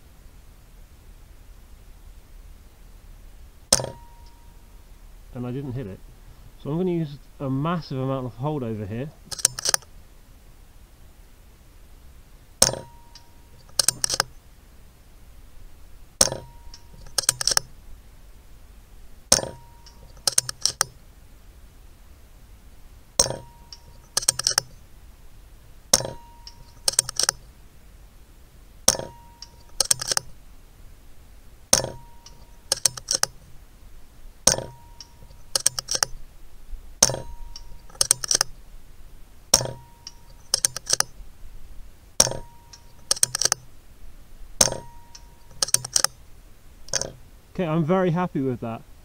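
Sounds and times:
rifle mechanism clicks: 3.7 - 4.1, 9.3 - 9.9, 12.6 - 14.3, 16.2 - 17.8, 19.3 - 21.0, 23.2 - 24.8, 25.9 - 27.4, 28.9 - 30.4, 31.7 - 33.4, 34.5 - 36.2, 37.0 - 38.6, 39.5 - 41.2, 42.2 - 43.7, 44.6 - 46.2, 46.9 - 47.2
air rifle shots with ring: 3.7 - 4.2, 9.3 - 9.9, 12.6 - 14.3, 16.2 - 17.8, 19.3 - 21.0, 23.2 - 24.8, 25.9 - 27.4, 28.9 - 30.3, 31.7 - 33.4, 34.5 - 36.2, 37.0 - 38.5, 39.6 - 41.1, 42.2 - 43.6, 44.6 - 46.1.

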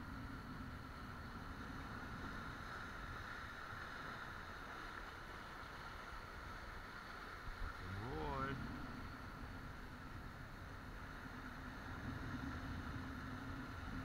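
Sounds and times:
sea water surging over rocks: 0.0 - 14.0.

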